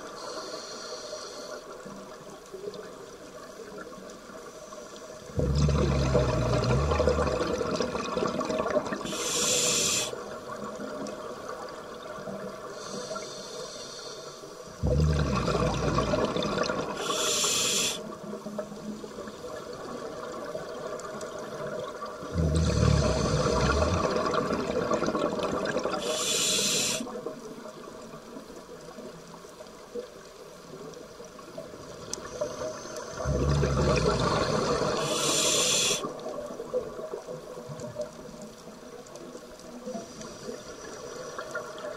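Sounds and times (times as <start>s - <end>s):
regulator breath hiss: 0.1s - 1.7s, 9.0s - 10.2s, 12.8s - 14.6s, 16.9s - 18.2s, 26.0s - 27.2s, 34.5s - 36.1s
rumble of exhaled bubbles: 5.3s - 9.3s, 14.8s - 17.1s, 19.8s - 26.1s, 33.1s - 35.2s.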